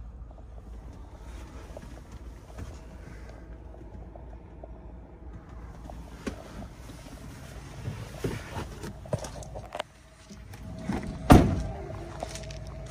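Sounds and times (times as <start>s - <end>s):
low steady rumble: 0.0s - 12.9s
van door clicks and knocks: 10.9s - 11.9s
loud sharp thump: 11.3s - 11.7s.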